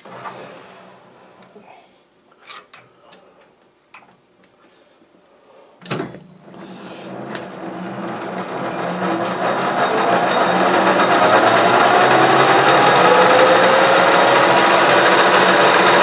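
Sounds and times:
lathe spinning up with whine: 6.4s - 16.0s.

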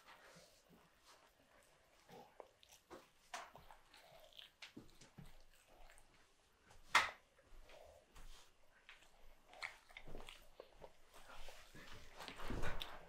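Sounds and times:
toddler chewing: 1.5s - 6.2s, 8.8s - 13.0s
wet mouth noises: 8.8s - 11.7s.

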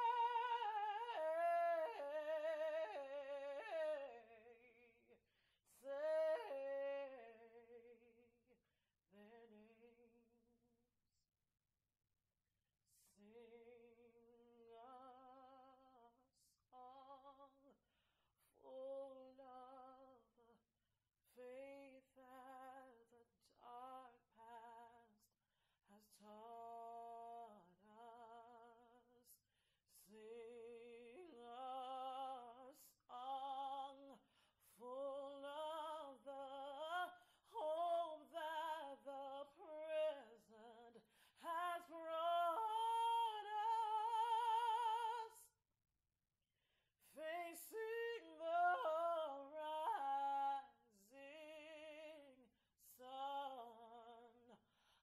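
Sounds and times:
woman singing solo: 0.0s - 4.3s
singer breaths: 41.0s - 41.4s.

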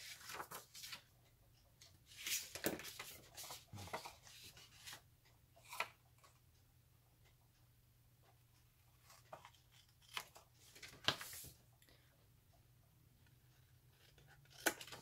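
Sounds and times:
paper rustling and sliding: 0.0s - 1.0s, 10.6s - 11.6s
scissors snipping paper: 14.0s - 15.0s.

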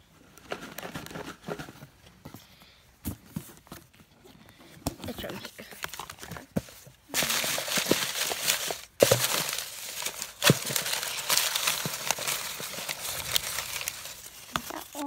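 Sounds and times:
paper slips rustling: 7.1s - 15.0s.

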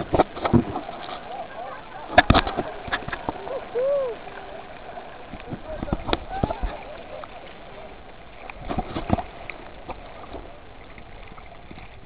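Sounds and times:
muffled water sloshing: 0.0s - 12.0s.

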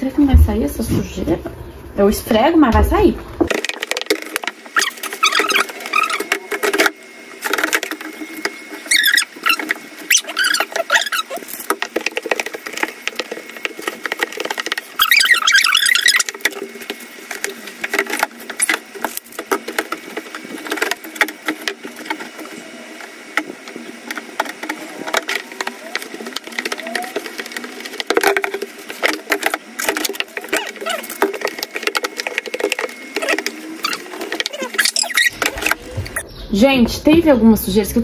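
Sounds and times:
cloth scrubbing plastic: 3.5s - 36.2s
cloth squeaking on plastic: 4.7s - 6.9s, 7.5s - 16.6s, 29.0s - 36.2s.

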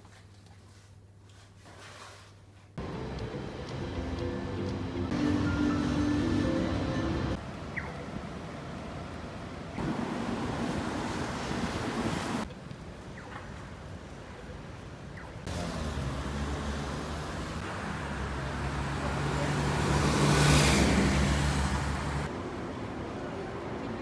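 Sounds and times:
road traffic: 2.8s - 24.0s
vehicle passing close: 15.5s - 22.4s.

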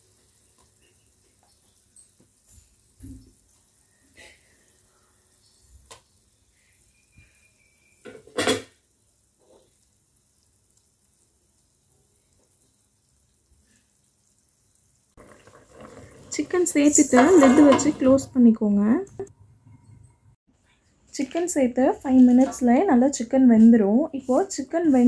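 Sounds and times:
knocks and clatters in a pot: 8.0s - 9.8s, 15.2s - 18.4s.

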